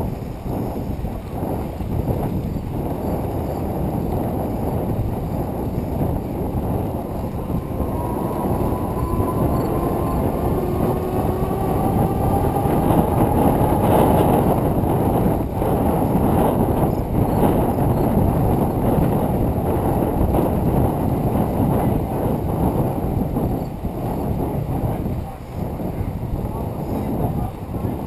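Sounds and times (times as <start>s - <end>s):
bicycle tyres rolling on pavement: 0.0s - 28.0s
wind rushing over microphone: 0.0s - 28.0s
faint thin whine: 5.7s - 14.6s.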